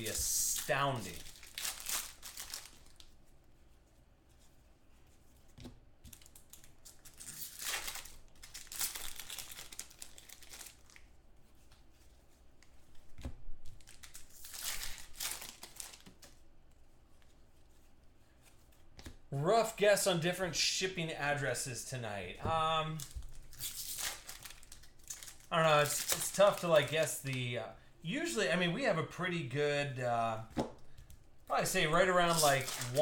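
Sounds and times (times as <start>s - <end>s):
wrappers crinkling and tearing: 0.0s - 3.2s, 6.1s - 11.1s, 13.7s - 16.5s, 22.9s - 27.3s, 31.6s - 33.0s.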